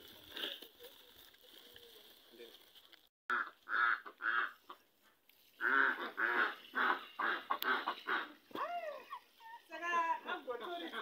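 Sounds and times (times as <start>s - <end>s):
waterfowl calling: 3.3s - 4.8s, 5.6s - 8.6s.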